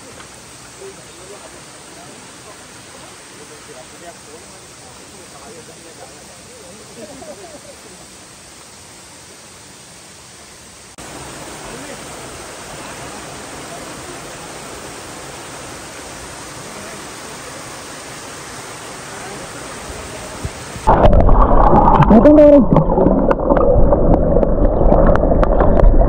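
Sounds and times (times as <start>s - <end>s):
mountain stream rushing: 0.0s - 26.0s
cascade pouring into rock pool: 11.0s - 26.0s.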